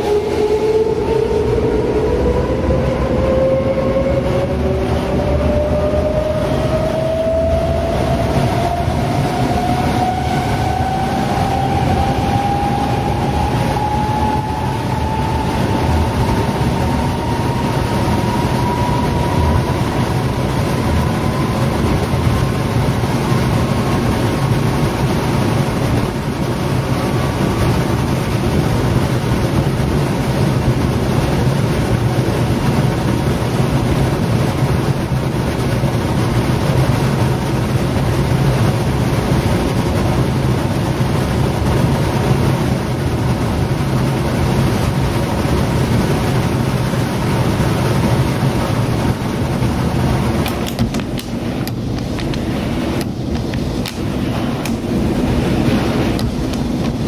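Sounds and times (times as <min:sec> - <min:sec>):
electric train motor whine: 0:00.0 - 0:44.4
wheels rumbling on track: 0:00.0 - 0:57.0.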